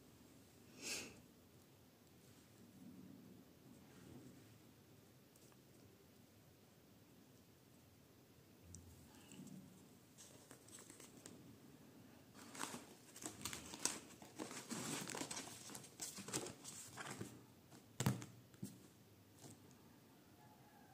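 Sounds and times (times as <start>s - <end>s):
paper pages rustling: 10.1s - 11.4s, 12.3s - 18.8s.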